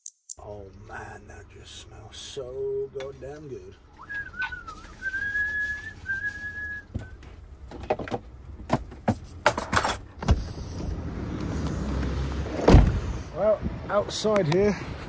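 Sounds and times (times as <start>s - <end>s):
low traffic: 0.4s - 15.0s
person whistling: 4.0s - 7.2s
van door thump: 12.6s - 13.0s.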